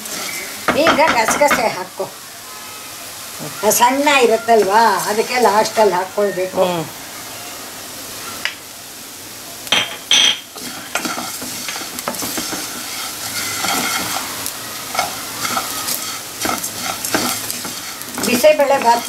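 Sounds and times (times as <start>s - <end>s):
spatula stirring seeds in pan: 0.0s - 2.0s, 3.6s - 6.0s, 10.4s - 19.0s
light sizzle: 0.0s - 19.0s.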